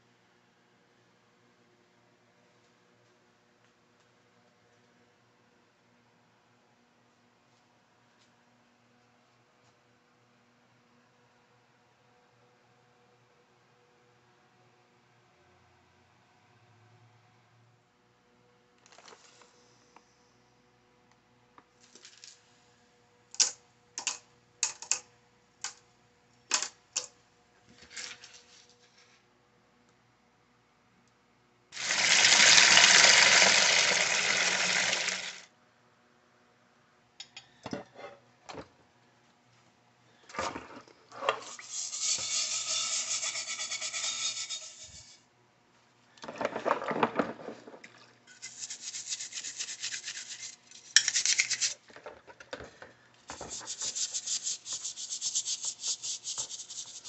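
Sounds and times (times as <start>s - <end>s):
rubbing noise: 53.3s - 57.0s.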